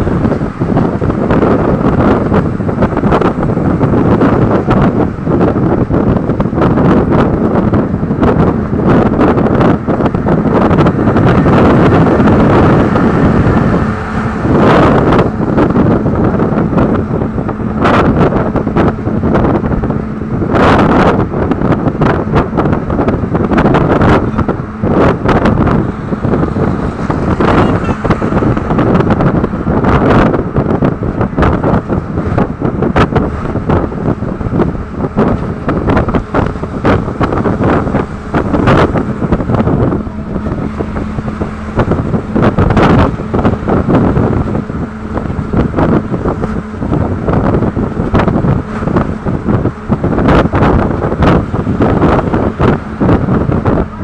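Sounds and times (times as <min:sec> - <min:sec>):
road and engine noise: 0:00.0 - 0:54.0
wind buffeting microphone: 0:00.0 - 0:54.0.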